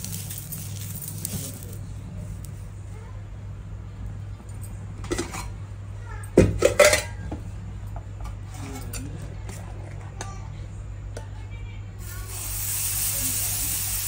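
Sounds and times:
metal utensils clinking: 0:00.0 - 0:01.8, 0:06.6 - 0:07.2
steady low hum: 0:00.0 - 0:12.3.

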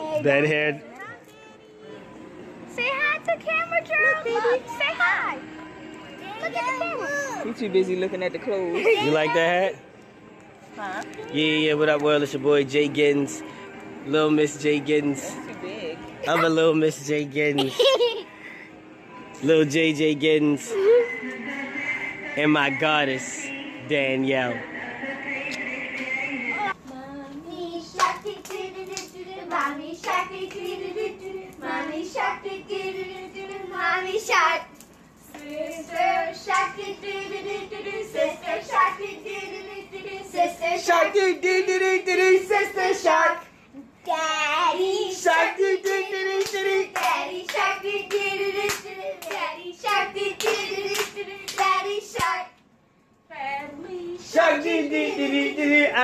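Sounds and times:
people singing excitedly: 0:27.4 - 0:34.7, 0:35.4 - 0:43.4, 0:44.1 - 0:52.6, 0:53.4 - 0:56.0
sharp hand claps: 0:45.8 - 0:52.4.

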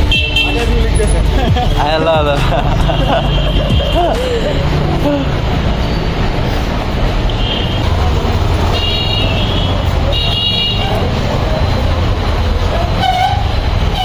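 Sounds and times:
vehicle horns tooting: 0:00.0 - 0:04.4, 0:07.3 - 0:08.0, 0:08.6 - 0:11.2, 0:12.8 - 0:14.0
road traffic rumbling: 0:00.0 - 0:14.0.

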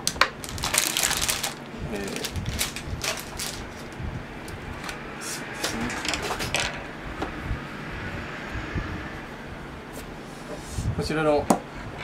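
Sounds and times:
plastic bag and cloth rustling: 0:00.0 - 0:04.0.

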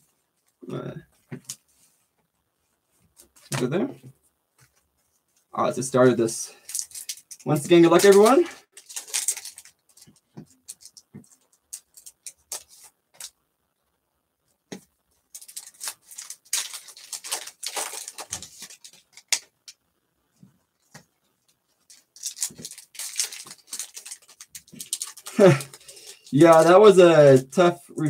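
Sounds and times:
foil wrapper crinkling and tearing: 0:06.5 - 0:13.4, 0:15.3 - 0:19.8, 0:21.8 - 0:27.6.

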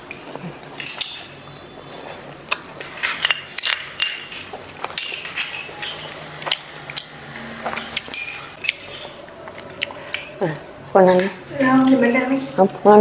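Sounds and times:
spoons clinking on ceramic bowls: 0:05.0 - 0:06.4.

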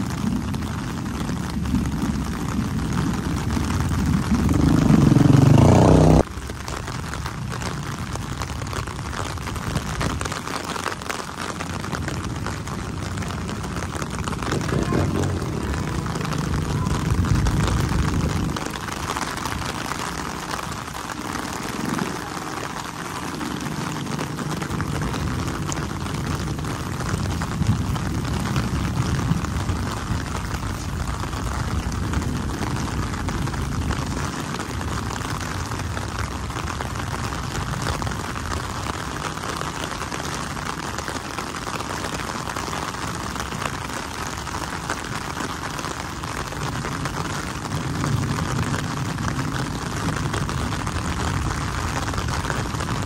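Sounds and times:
low rumble: 0:00.0 - 0:10.6, 0:11.2 - 0:38.6
heavy rain on pavement: 0:00.0 - 0:53.0.

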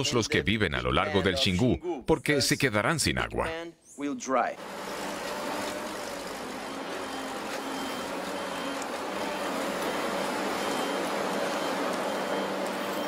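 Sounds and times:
heavy machinery running: 0:04.6 - 0:13.0.

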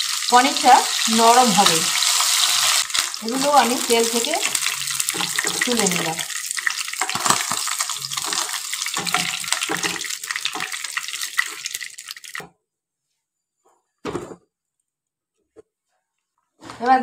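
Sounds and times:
food sizzling in hot oil: 0:00.0 - 0:12.5.

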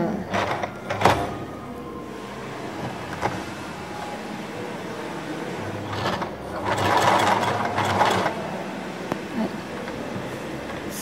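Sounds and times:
sewing machine stitching: 0:00.2 - 0:01.4, 0:05.4 - 0:11.0.

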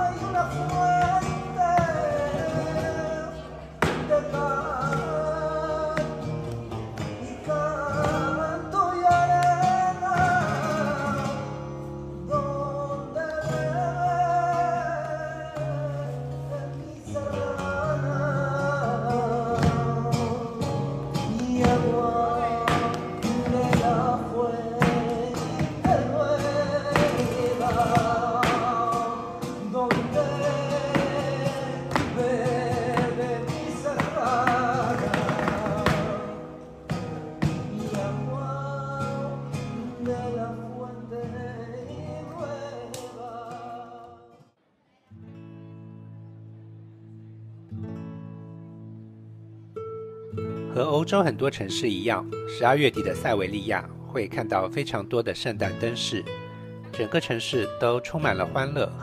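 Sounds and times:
person singing: 0:00.0 - 0:44.5
acoustic guitar: 0:00.0 - 0:59.0.

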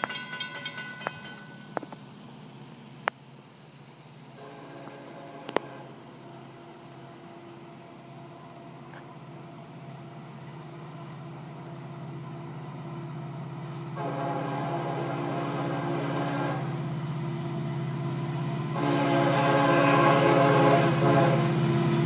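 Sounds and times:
diesel locomotive engine rumble: 0:00.0 - 0:22.0
locomotive air horn: 0:04.4 - 0:06.2, 0:13.9 - 0:16.8, 0:18.7 - 0:21.6.

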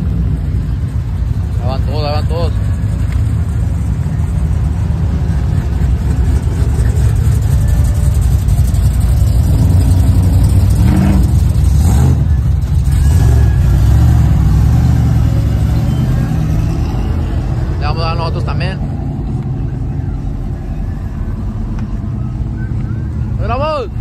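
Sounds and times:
truck engine revving: 0:00.0 - 0:24.0
trucks driving past: 0:00.0 - 0:24.0.

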